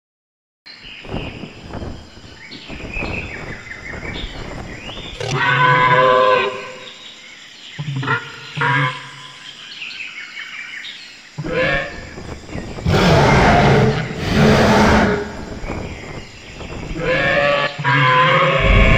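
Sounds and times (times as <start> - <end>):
loud dinosaur calls: 11.4 - 12.0, 12.8 - 15.5, 17.0 - 18.9.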